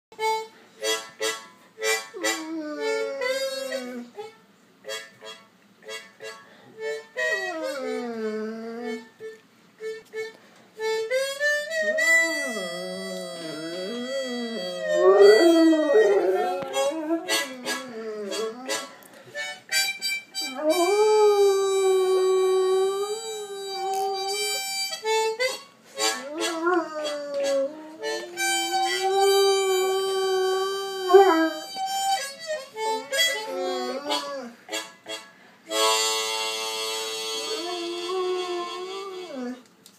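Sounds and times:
harmonica playing: 0:00.1 - 0:39.6
dog howling: 0:11.8 - 0:18.8, 0:20.4 - 0:24.6, 0:26.1 - 0:32.2, 0:32.9 - 0:34.6.

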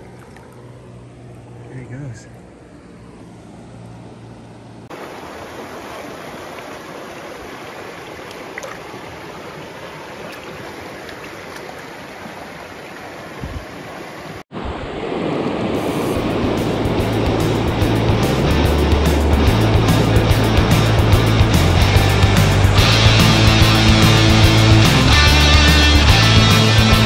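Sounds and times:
white water rushing: 0:04.8 - 0:27.0
creek water running over rocks: 0:04.9 - 0:14.4.

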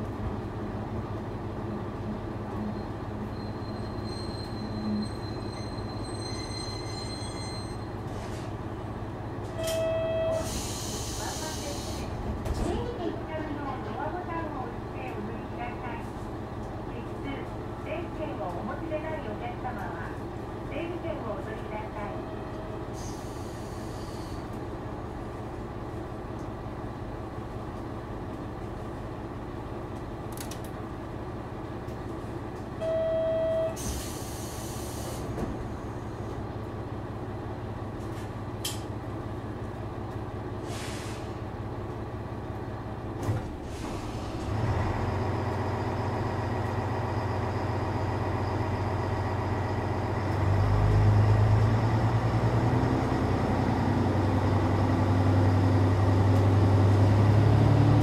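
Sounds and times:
diesel railcar engine idling: 0:00.0 - 0:58.0
short steady beep: 0:32.8 - 0:33.8.

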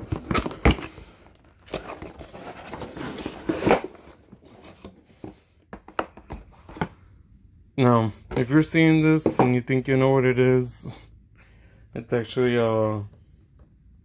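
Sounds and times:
cardboard and packing rustling: 0:00.0 - 0:07.0.

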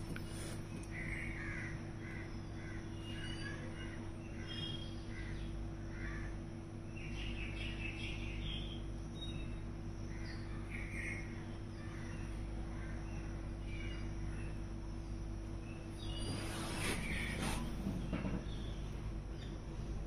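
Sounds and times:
steady low hum: 0:00.0 - 0:20.0
crows cawing: 0:01.0 - 0:03.2, 0:03.8 - 0:06.4.

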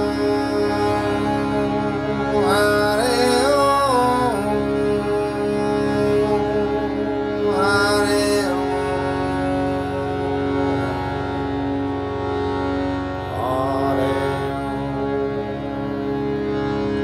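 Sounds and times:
steady held drone: 0:00.0 - 0:17.0
man singing a chant: 0:02.3 - 0:06.5, 0:07.4 - 0:10.1, 0:13.3 - 0:15.1.

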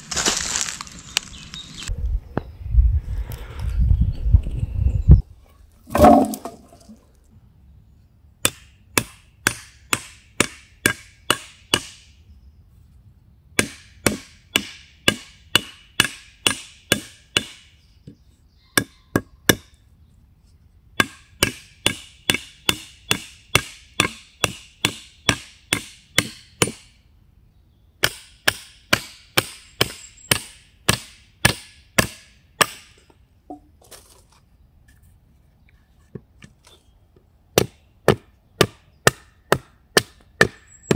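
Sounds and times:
hatchet chopping wood: 0:08.4 - 0:12.0, 0:13.6 - 0:17.7, 0:18.8 - 0:19.7, 0:21.0 - 0:26.9, 0:28.0 - 0:33.0, 0:37.6 - 0:40.9.

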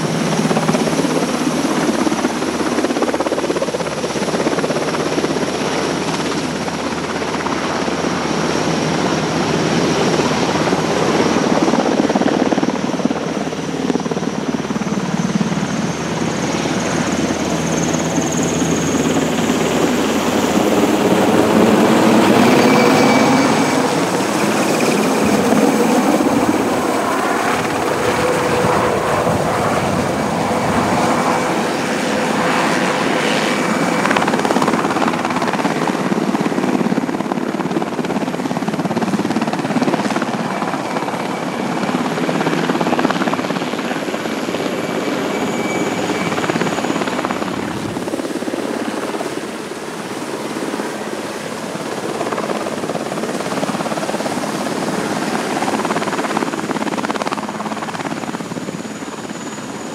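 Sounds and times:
helicopter engines and rotor: 0:00.0 - 0:59.9
faint high whine: 0:12.5 - 0:35.6, 0:42.7 - 0:48.1.

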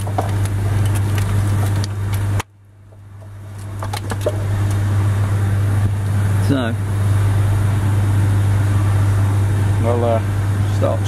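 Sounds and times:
wiring clicks and rustles: 0:00.0 - 0:04.8
steady low hum: 0:00.0 - 0:11.0.

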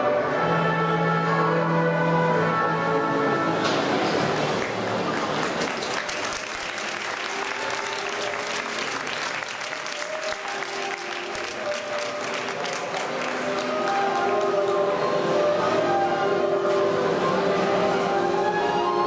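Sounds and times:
background music: 0:00.0 - 0:19.0
crowd applauding: 0:03.9 - 0:14.9.

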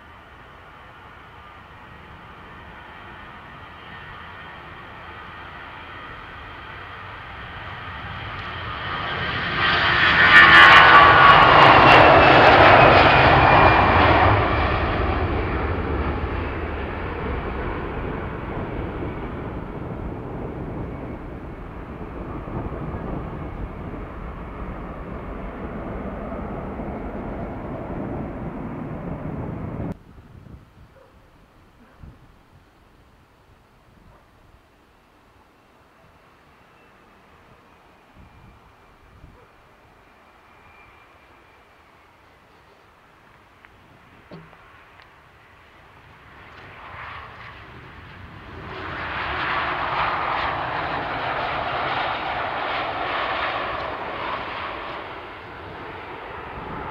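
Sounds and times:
jet taking off: 0:00.0 - 0:30.0, 0:39.7 - 0:56.9.

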